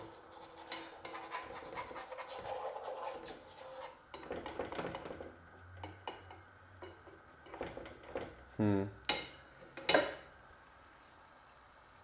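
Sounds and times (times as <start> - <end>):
fork scraping egg in frying pan: 0.0 - 4.5.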